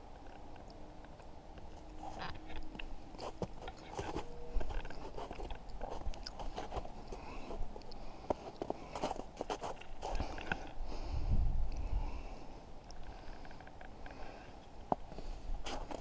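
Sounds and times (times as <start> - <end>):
footsteps crunching on snow: 3.2 - 10.6, 15.6 - 16.0.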